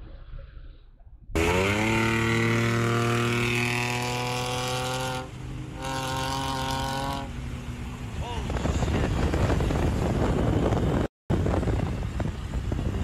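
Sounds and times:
car engine revving high: 1.4 - 7.8.

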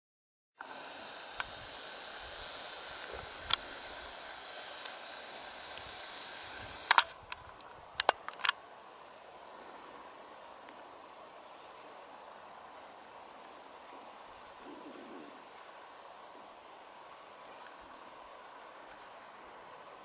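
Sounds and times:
steady hiss: 0.6 - 20.0
camera handling clicks: 6.8 - 7.2, 8.0 - 8.6.

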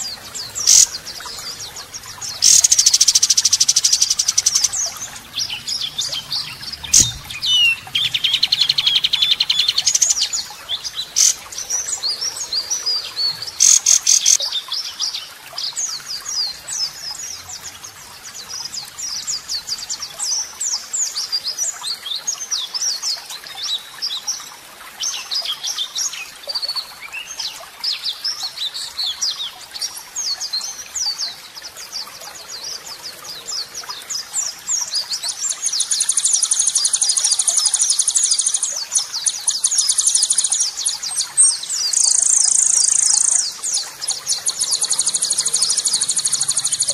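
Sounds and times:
bird song buzzy trill: 0.0 - 14.4, 35.5 - 46.9.

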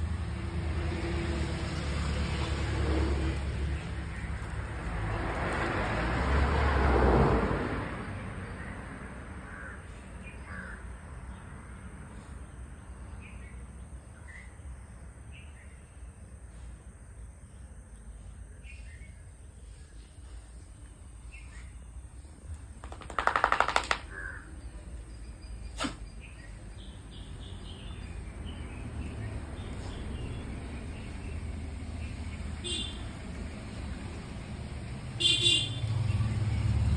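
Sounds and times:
distant traffic hum: 0.0 - 36.9
crow cawing: 9.5 - 9.8, 10.5 - 10.8
small birds chirping: 17.4 - 33.4.

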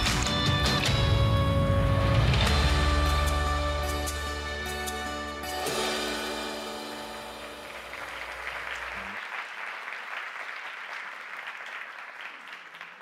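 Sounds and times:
audience applauding: 0.0 - 1.5, 6.8 - 13.0
film music chords and bass: 0.0 - 8.8.

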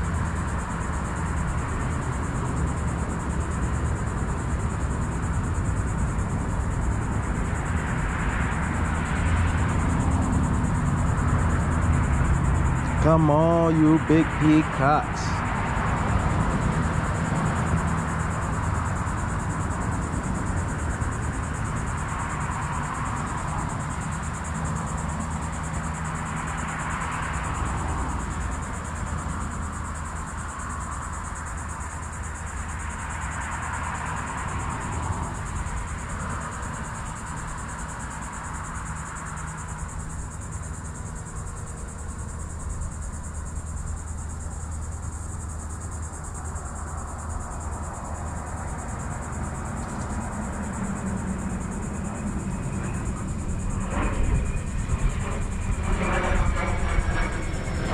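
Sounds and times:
high-pitched insect drone: 0.0 - 57.9.

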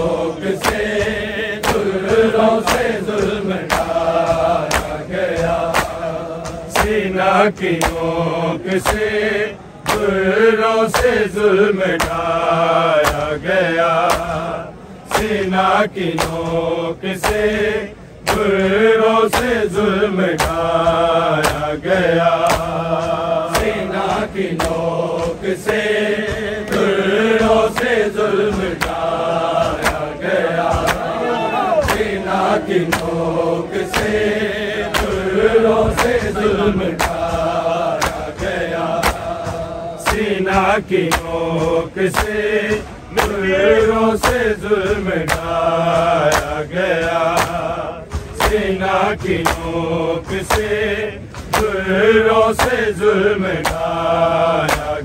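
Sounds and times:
crowd of men chanting: 0.0 - 55.0
hands slapping bare chests: 2.6 - 3.0, 3.7 - 7.1, 7.8 - 8.1, 11.9 - 12.3, 13.0 - 13.3, 16.1 - 16.4, 21.4 - 21.7, 28.8 - 30.1, 31.8 - 33.2, 34.9 - 35.3, 37.0 - 37.2, 38.0 - 38.4, 39.0 - 39.3, 42.1 - 42.4, 54.6 - 54.9.

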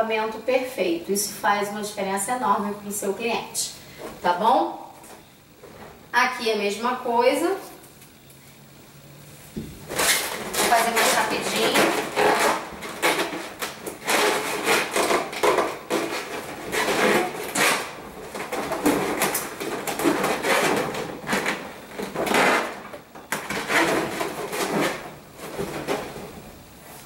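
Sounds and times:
balloons rubbing and squeaking: 9.8 - 27.0.

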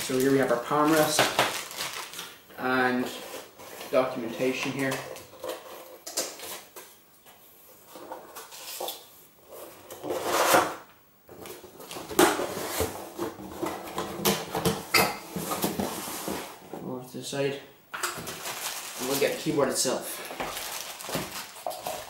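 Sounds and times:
cardboard scraping: 9.5 - 10.8, 15.3 - 16.6.

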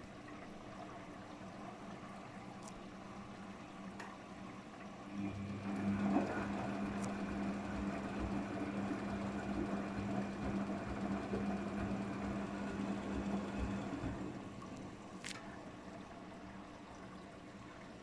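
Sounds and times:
water swishing in drum: 0.0 - 18.0
washing machine motor hum: 3.1 - 17.1.

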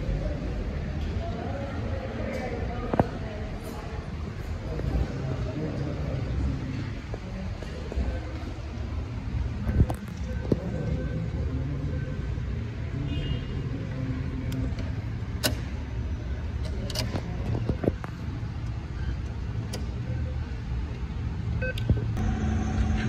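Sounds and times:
short electronic beeps: 21.6 - 21.9.

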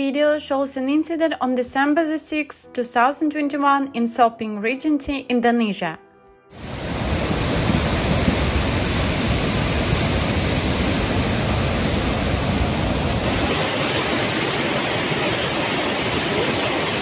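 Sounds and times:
floodwater rushing with deep rumble: 6.6 - 17.0.

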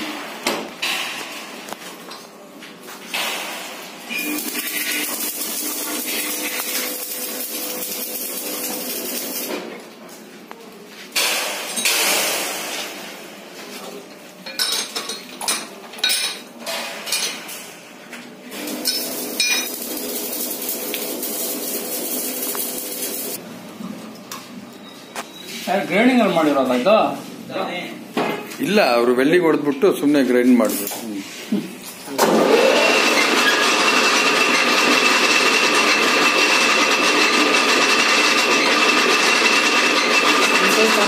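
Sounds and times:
metal lathe running: 4.2 - 9.5, 18.6 - 23.4, 32.2 - 41.0.

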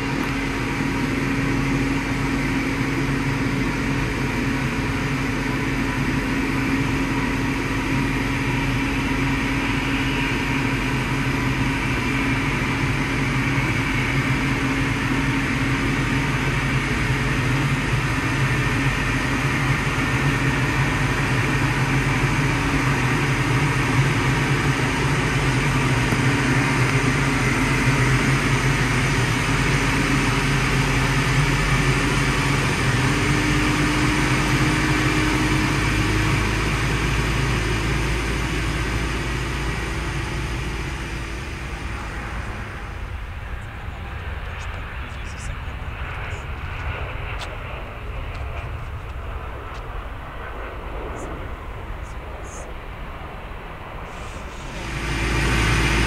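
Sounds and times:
low engine hum: 0.0 - 56.0.

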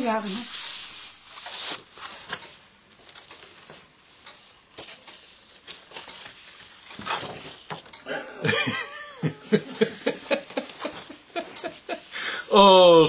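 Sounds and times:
paper rustling: 0.4 - 4.2, 4.8 - 7.9.

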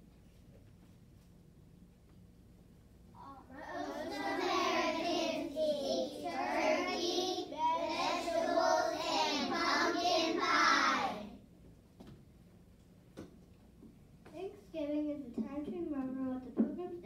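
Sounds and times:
young children singing: 3.4 - 11.3.

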